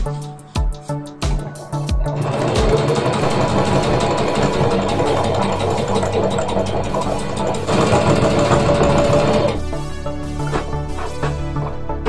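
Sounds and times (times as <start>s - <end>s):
sewing machine stitching: 2.0s - 9.6s.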